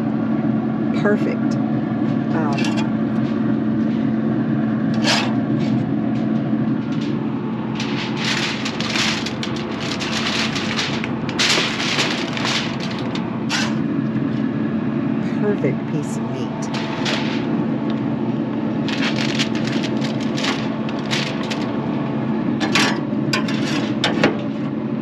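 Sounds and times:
steady low hum: 0.0 - 25.0
metal spatula scraping grill grate: 2.4 - 3.0, 4.9 - 5.8, 6.8 - 14.0, 16.7 - 17.6, 18.8 - 21.7, 22.6 - 24.2
aluminum foil crinkling: 5.0 - 5.8, 6.7 - 14.0, 16.7 - 21.9.

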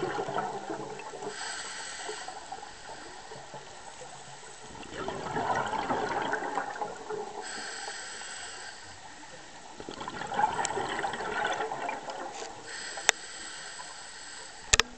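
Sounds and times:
gurgling exhaled bubbles: 0.0 - 13.0
hissing regulator inhale: 1.0 - 3.7, 7.4 - 9.6, 12.4 - 14.9.

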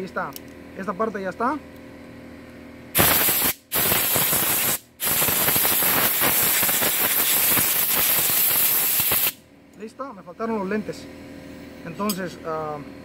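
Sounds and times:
air blow gun hissing: 3.0 - 9.4.

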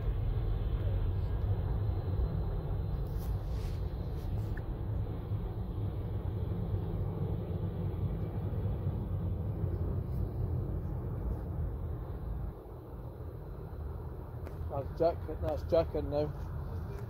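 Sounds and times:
distant jet engines rumbling: 0.0 - 17.0
faint rustles: 3.0 - 4.8.

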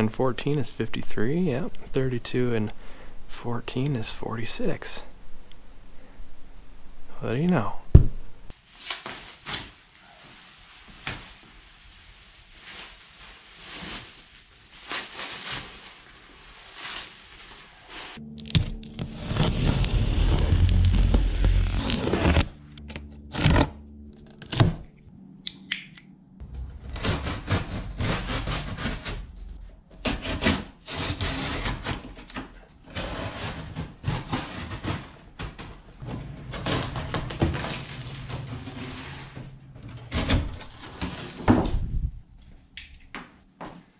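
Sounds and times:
plastic wrap crackling and tearing: 8.7 - 24.9
knife slicing packing tape: 18.4 - 22.5
cardboard flaps scraping and thumping: 18.5 - 22.5, 32.9 - 42.1.

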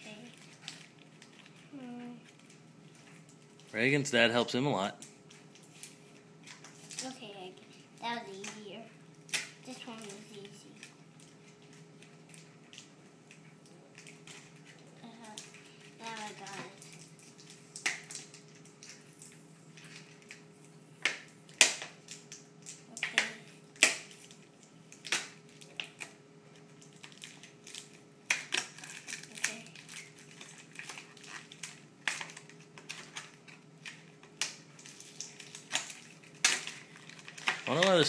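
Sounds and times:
plastic packaging crinkling: 9.1 - 20.5, 21.4 - 38.0.

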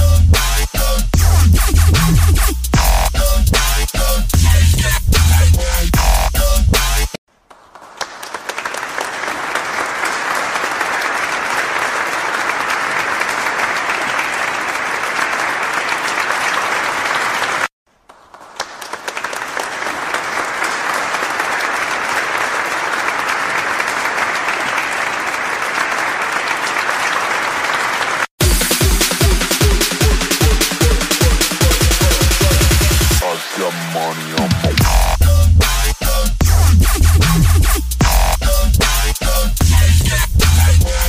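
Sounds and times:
crowd applauding: 7.4 - 34.8.

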